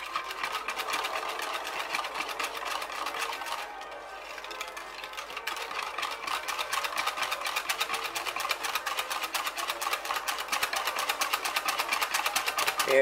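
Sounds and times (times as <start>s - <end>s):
whisk clicking against plastic jug: 0.0s - 13.0s.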